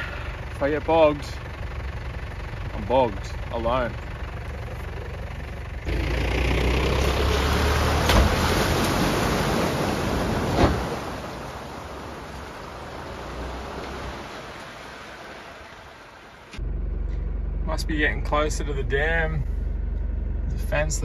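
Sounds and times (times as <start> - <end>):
engine pulling hard under load: 0.0 - 21.0
water spraying and splashing: 6.3 - 16.6.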